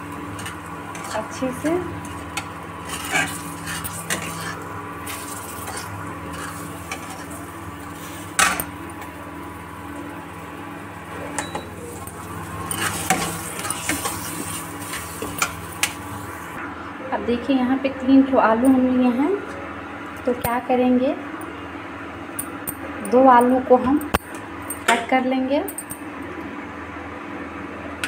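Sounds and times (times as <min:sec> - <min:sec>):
cooktop hum: 0:00.0 - 0:28.0
metal spatula scraping a pan: 0:02.4 - 0:08.6, 0:12.6 - 0:16.0.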